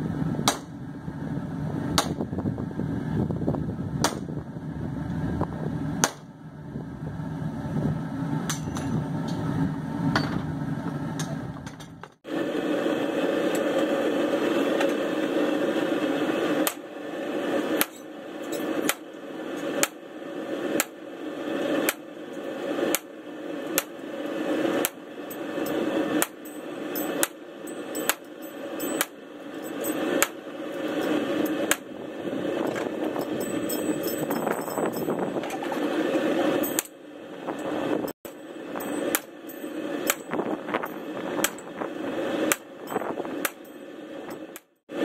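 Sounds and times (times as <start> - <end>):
gas forge burner rushing: 0.0 - 45.0
hammer striking steel: 8.5 - 8.9, 16.6 - 16.8, 17.8 - 20.0, 24.7 - 31.9, 36.6 - 37.0, 38.3 - 41.7, 42.5 - 44.7.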